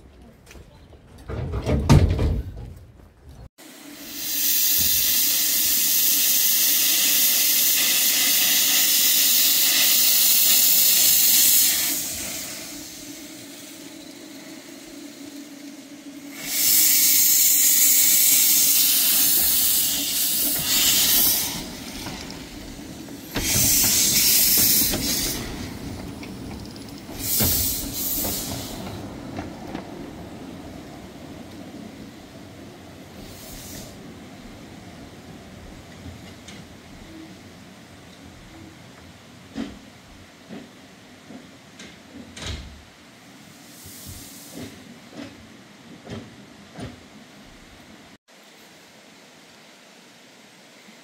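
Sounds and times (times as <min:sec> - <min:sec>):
steam locomotive hissing: 0:03.6 - 0:38.8, 0:43.0 - 0:47.3.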